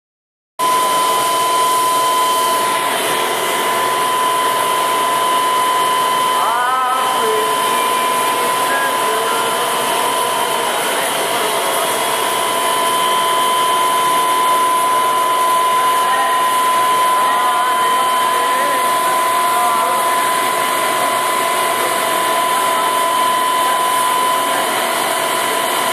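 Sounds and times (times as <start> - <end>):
high machine whine: 0.6 - 25.9
machine motors whirring: 0.6 - 25.9.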